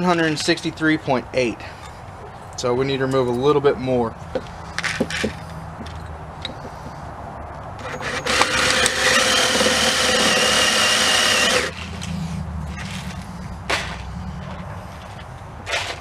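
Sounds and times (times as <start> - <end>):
drill whining into metal: 7.8 - 11.8.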